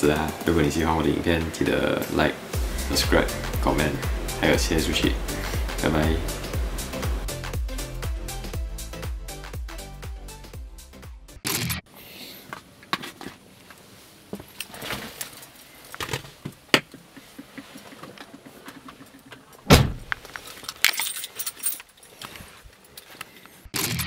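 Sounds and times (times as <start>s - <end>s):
loud thump: 19.7s - 20.1s.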